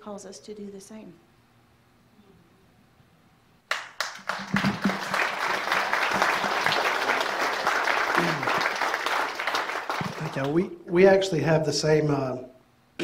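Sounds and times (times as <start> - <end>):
congregation applauding: 3.7 - 10.6.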